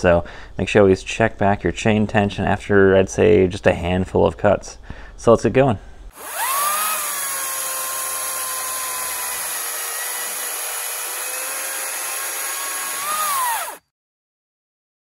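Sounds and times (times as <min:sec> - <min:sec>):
electric chainsaw cutting log: 0:06.2 - 0:13.9.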